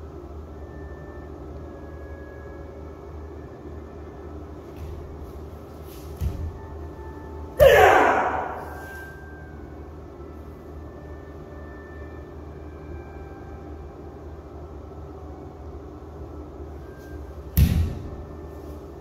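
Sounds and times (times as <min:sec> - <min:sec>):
low hum of hall: 0:00.0 - 0:19.0
loud sharp kick thump: 0:07.6 - 0:08.7, 0:17.6 - 0:18.1.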